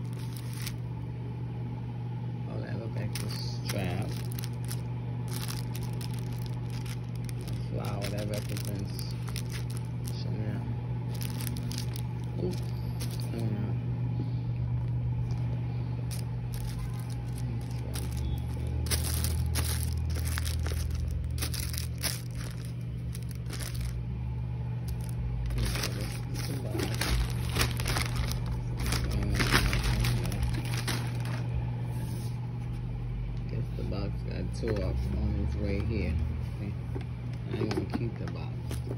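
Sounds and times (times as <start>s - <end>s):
plastic bag crinkling: 0.0s - 0.8s, 3.0s - 10.4s, 11.0s - 13.5s, 15.2s - 24.1s, 24.8s - 31.5s
low hum: 0.0s - 37.5s.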